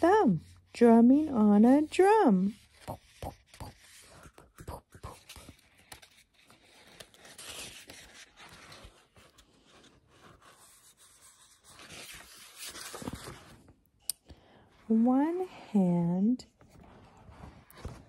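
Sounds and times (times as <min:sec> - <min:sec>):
paper pages rustling: 0:02.4 - 0:13.9, 0:16.6 - 0:18.0
page turning: 0:02.5 - 0:13.8.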